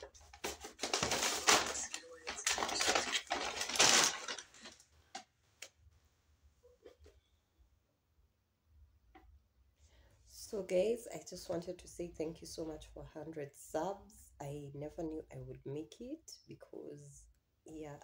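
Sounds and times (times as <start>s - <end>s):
paper bag crumpling: 0.0s - 4.8s.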